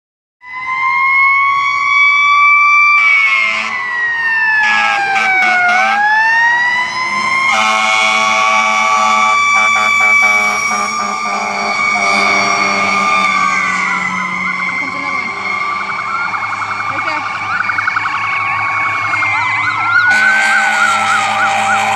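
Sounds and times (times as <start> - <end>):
fire truck siren wailing: 0.4 - 21.9
air horn blasts: 3.0 - 3.8, 4.6 - 6.1, 7.5 - 13.5, 20.1 - 21.9.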